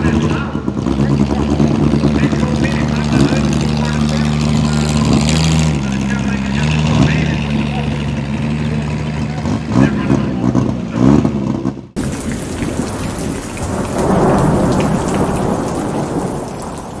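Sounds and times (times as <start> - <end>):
truck engine revving: 0.0 - 17.0
thunder and rain: 12.0 - 17.0.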